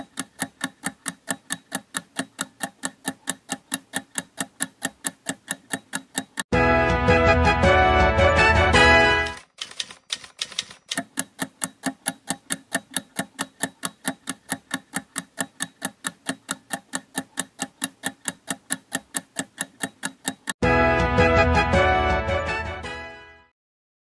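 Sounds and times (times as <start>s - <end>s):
rapid clock-like ticks: 0.0s - 6.5s, 9.4s - 20.6s
background music: 6.5s - 9.4s, 20.6s - 23.5s.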